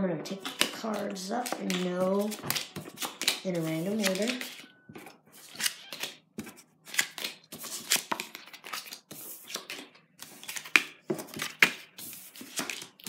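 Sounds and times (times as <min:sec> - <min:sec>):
playing cards scraping on wooden table: 0:00.4 - 0:10.6.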